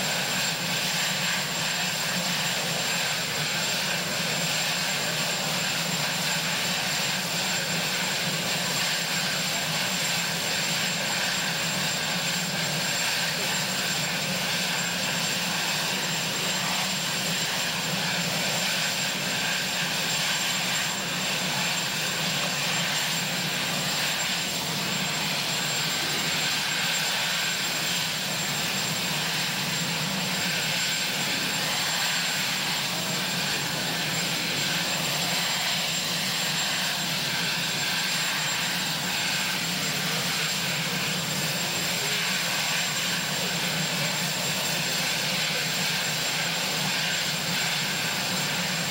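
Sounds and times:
helicopter running on ground: 0.0 - 48.9.

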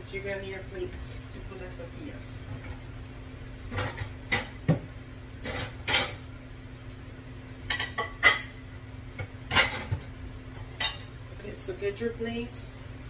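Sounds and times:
dishes and cutlery clattering: 5.4 - 6.2, 7.7 - 8.6, 9.5 - 10.0, 10.8 - 11.1.

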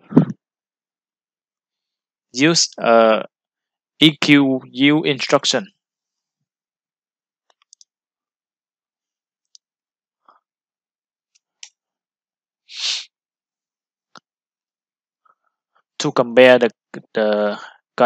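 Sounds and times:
short breathy noise: 12.7 - 13.1.

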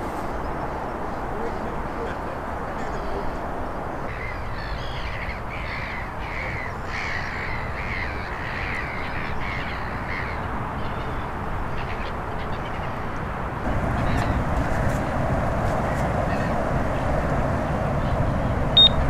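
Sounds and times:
crow cawing: 4.1 - 11.2.

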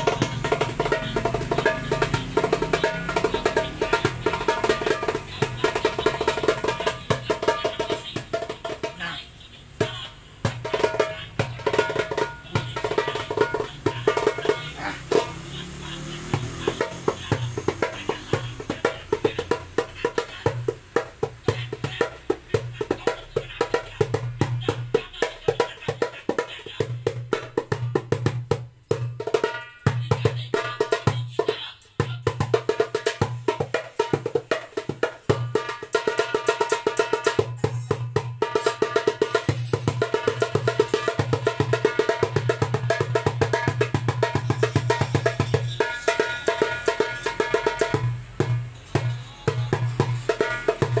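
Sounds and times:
hand drum playing fast rhythm: 0.0 - 51.0.

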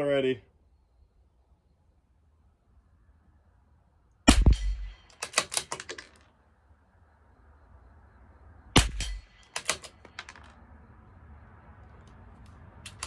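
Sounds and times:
rifle shots: 4.3 - 5.8, 8.8 - 10.0
rifle bolt clicks: 4.5 - 6.1, 12.0 - 13.0.

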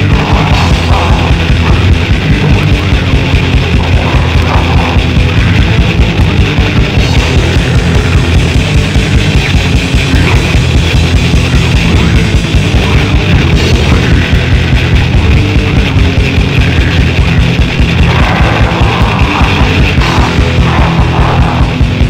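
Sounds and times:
distorted guitars: 0.0 - 22.0
fast driving drums: 0.0 - 22.0.

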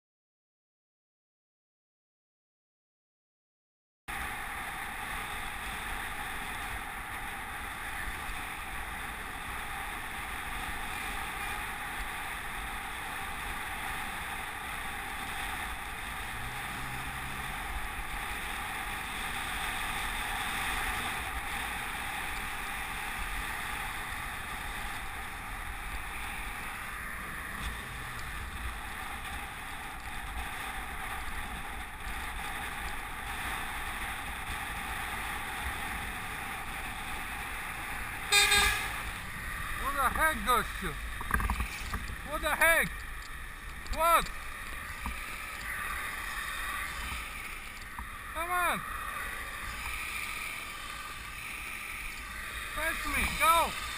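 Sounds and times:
tyres on wet road: 4.1 - 53.9
passing truck engine hum: 15.4 - 19.8, 23.0 - 29.7, 37.5 - 40.0.

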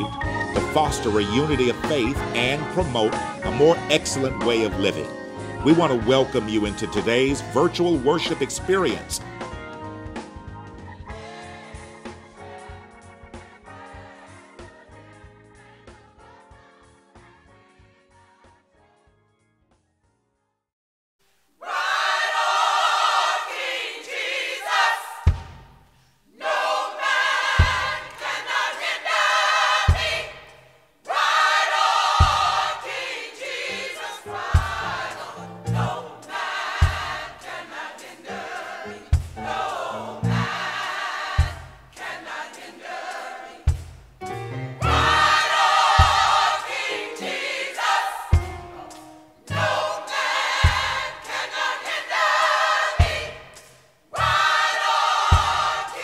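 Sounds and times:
choir singing with vibrato: 0.0 - 9.1, 10.8 - 18.8, 21.5 - 25.5, 26.2 - 56.0.

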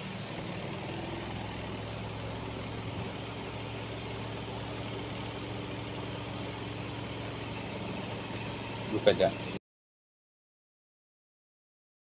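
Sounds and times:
spin-dryer motor humming: 0.0 - 9.6.

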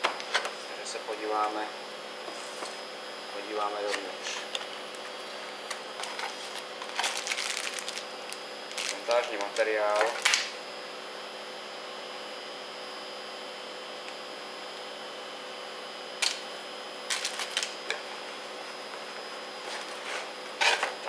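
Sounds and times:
machinery electrical hum: 0.0 - 21.0
cables and packaging rattling: 5.7 - 10.4, 17.1 - 17.8.

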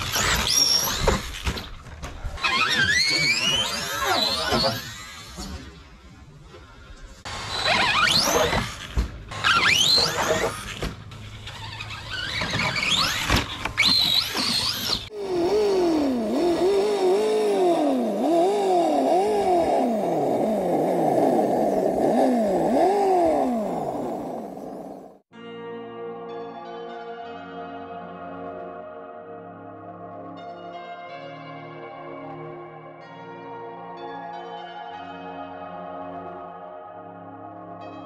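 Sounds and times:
toy truck motor whining: 0.0 - 1.4, 7.3 - 25.2.

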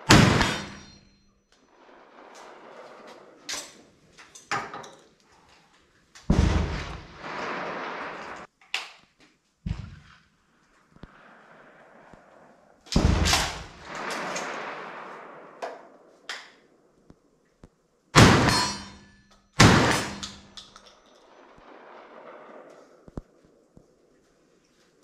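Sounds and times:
shotgun shots echoing: 0.0 - 1.2, 6.3 - 8.5, 12.9 - 16.0, 18.2 - 23.2
loud bang: 6.3 - 7.4, 12.9 - 14.9.

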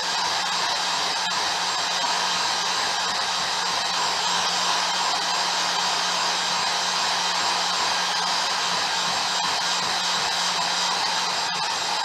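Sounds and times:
hair dryer blowing: 0.0 - 12.0.

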